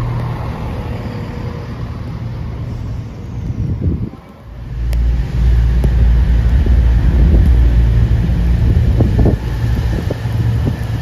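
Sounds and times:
diesel train engines droning: 0.0 - 11.0
wind buffeting microphone: 2.4 - 11.0.

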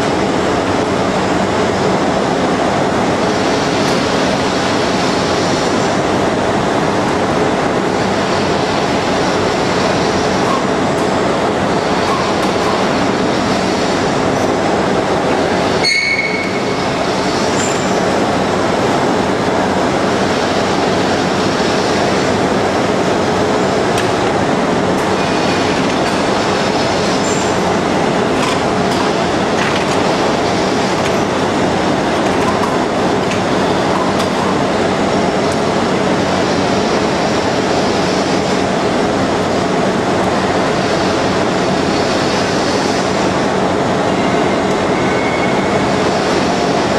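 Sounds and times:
short high squeal: 15.8 - 16.8, 44.9 - 45.8
lathe running: 16.5 - 43.8.

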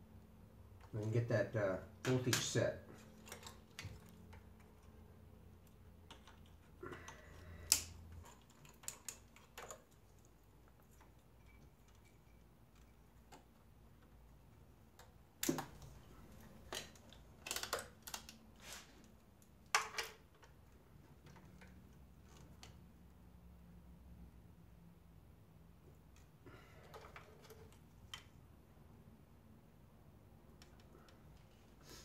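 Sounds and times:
light clicks of handling parts: 30.5 - 31.8.

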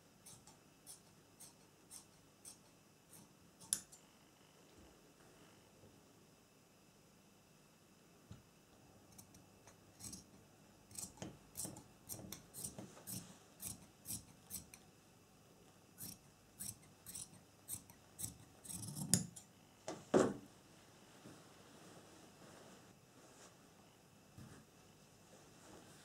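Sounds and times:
shears snipping fabric: 0.2 - 3.9, 10.0 - 14.8, 16.0 - 19.4.

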